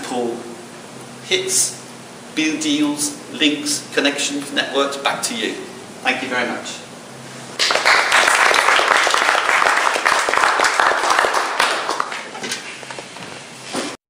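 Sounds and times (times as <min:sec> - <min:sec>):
audience applauding: 0:07.6 - 0:12.4.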